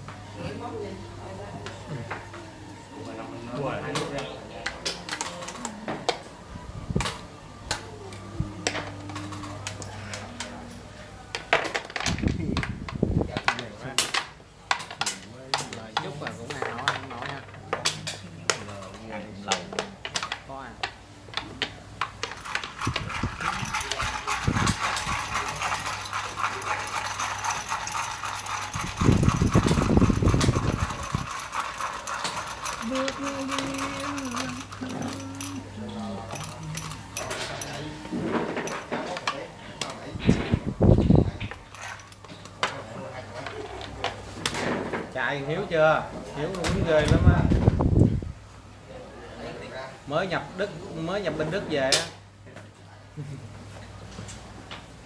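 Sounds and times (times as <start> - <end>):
steady low hum: 17.4 - 44.4
game pieces clicking on board: 22.0 - 35.6.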